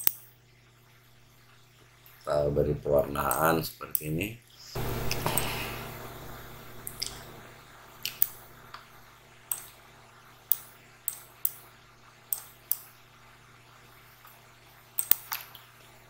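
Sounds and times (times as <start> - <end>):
faint steady hum: 0.0 - 16.0
computer mouse clicking: 8.0 - 8.8, 9.5 - 9.8, 10.5 - 11.6, 12.3 - 12.9, 15.0 - 15.7.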